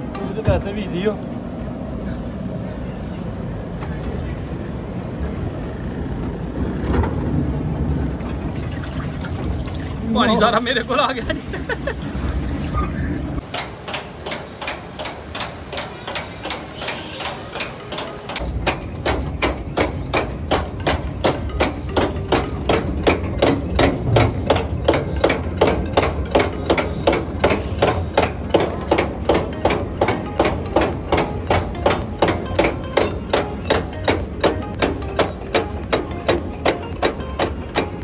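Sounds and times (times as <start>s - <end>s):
lift conveyor clacking: 13.4s - 38.0s.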